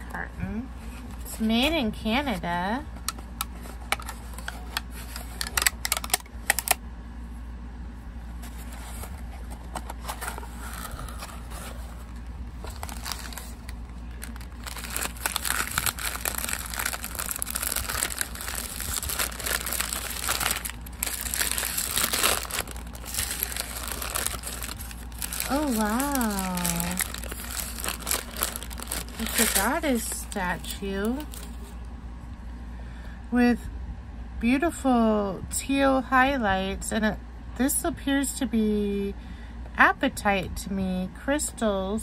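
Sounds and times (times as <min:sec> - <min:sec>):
packaging crinkling and rustling: 0:03.0 - 0:06.8, 0:08.3 - 0:31.7
packaging clicks: 0:03.4 - 0:06.8, 0:12.6 - 0:30.1.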